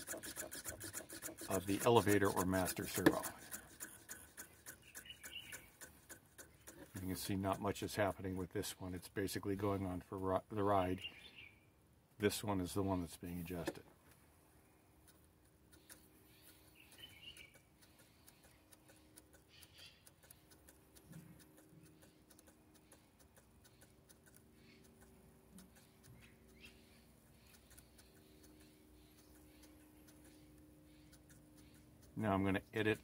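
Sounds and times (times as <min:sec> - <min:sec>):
servos ticking: 0:00.0 - 0:07.3, 0:15.0 - 0:33.0.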